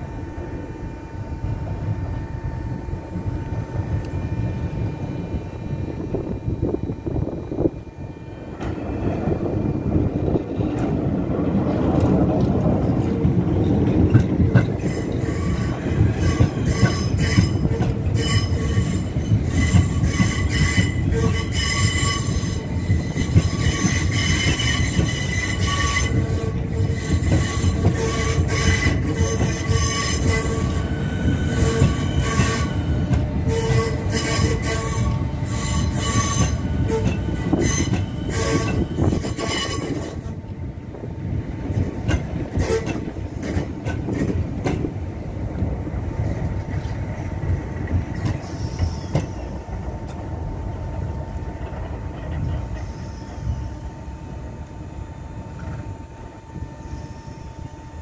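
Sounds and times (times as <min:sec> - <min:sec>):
train running hum: 0:00.0 - 0:58.0
train wheels squealing: 0:13.6 - 0:40.3, 0:42.5 - 0:44.3, 0:48.1 - 0:49.6, 0:51.8 - 0:54.2, 0:56.6 - 0:58.0.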